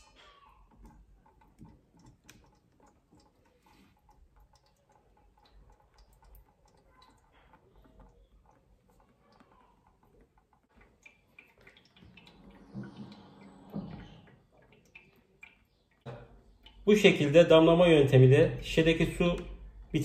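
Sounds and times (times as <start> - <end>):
water dripping: 0.0 - 20.0.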